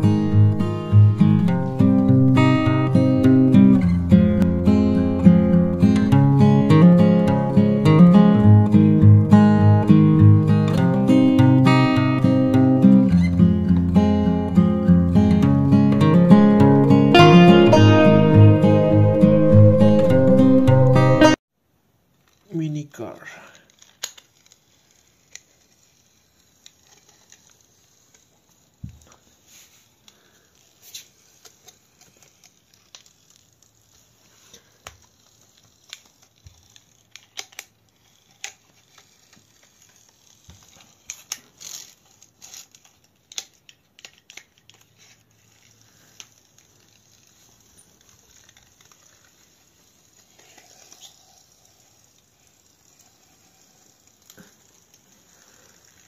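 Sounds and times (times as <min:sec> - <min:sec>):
toy car clicking on hard floor: 0:23.6 - 0:29.4, 0:30.4 - 0:56.0.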